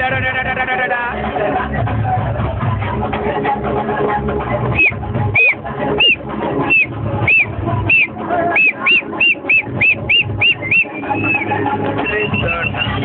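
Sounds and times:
steady low bass: 0.0s - 13.0s
person whistling notes: 4.8s - 13.0s.

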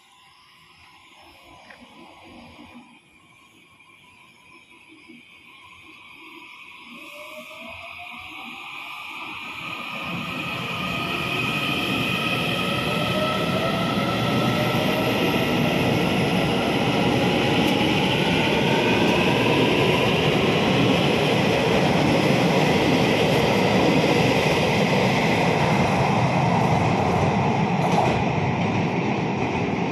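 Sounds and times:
train wheels rumbling on rails: 6.9s - 29.9s.

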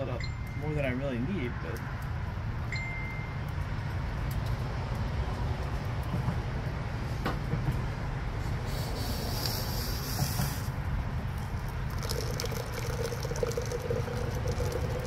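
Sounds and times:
boiling water pouring: 11.3s - 15.0s.

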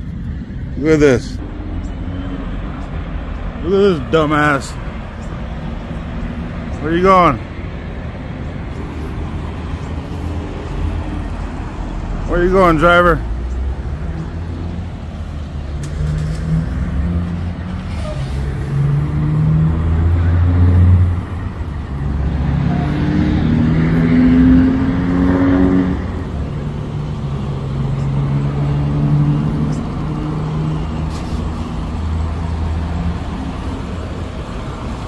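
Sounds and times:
diesel truck engine revving: 13.0s - 35.0s.

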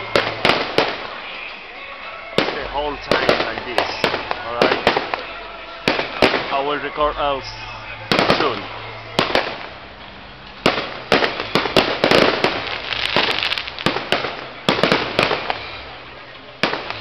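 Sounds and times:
firework shells bursting: 0.0s - 1.6s, 2.2s - 16.0s, 16.6s - 17.0s
firework crackling: 0.0s - 17.0s.

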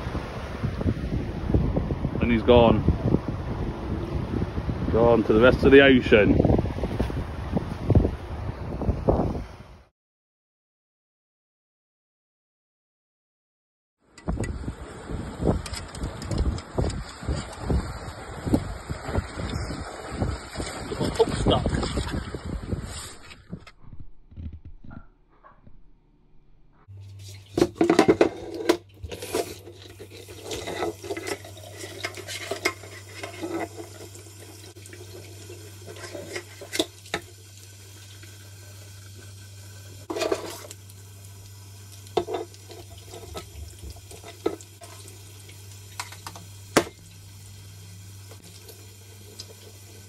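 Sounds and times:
shell and board clattering on sink: 27.6s - 34.1s, 42.2s - 45.0s.

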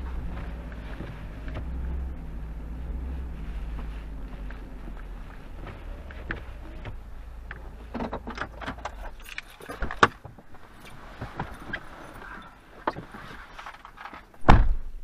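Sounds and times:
low engine hum: 0.0s - 14.5s
car door shutting: 0.3s - 2.1s, 14.4s - 14.9s.

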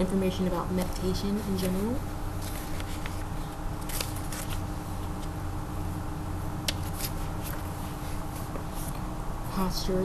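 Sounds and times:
low background hum: 0.0s - 10.0s
book pages rustling: 0.9s - 5.3s, 6.7s - 9.1s.

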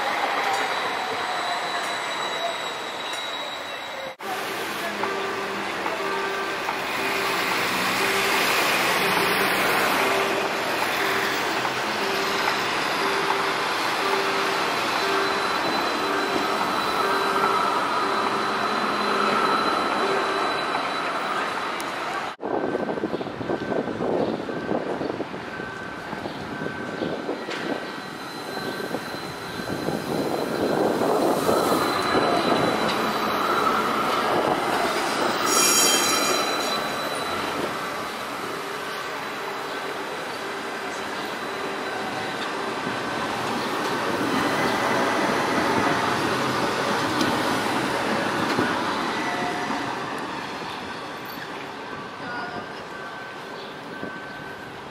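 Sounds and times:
tram rolling rumble: 0.0s - 54.9s
wheels squealing on rails: 0.0s - 54.9s
low repeating beep: 5.1s - 21.6s.

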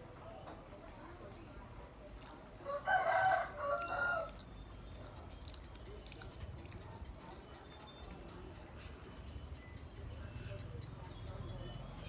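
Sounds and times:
rooster crowing: 2.6s - 4.4s.

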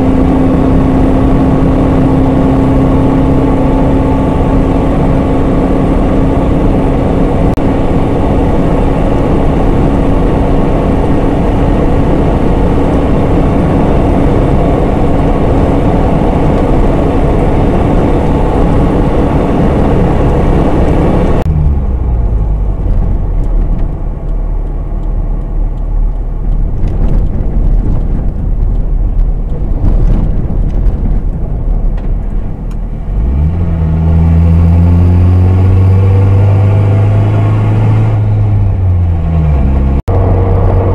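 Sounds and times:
car engine and tyre drone: 0.0s - 40.9s
scattered clicks: 23.4s - 30.8s.

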